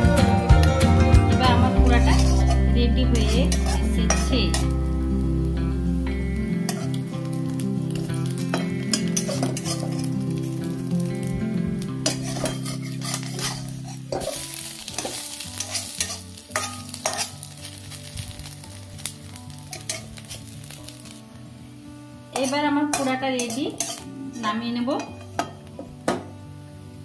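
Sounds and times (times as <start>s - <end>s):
vegetables sizzling in oil: 1.4s - 27.0s
metal spatula scraping pan: 1.9s - 4.8s, 6.6s - 7.0s, 8.4s - 10.5s, 12.0s - 17.9s, 19.6s - 20.8s, 22.4s - 24.1s.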